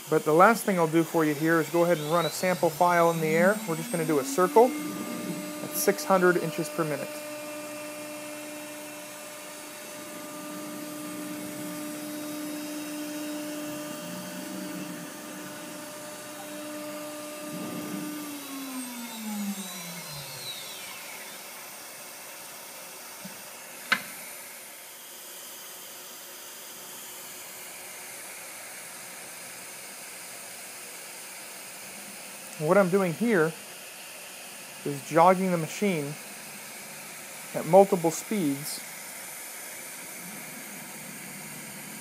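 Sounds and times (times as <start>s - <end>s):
steady hiss: 0.0s - 18.2s, 31.0s - 42.0s
cnc router spindle whine: 0.0s - 42.0s.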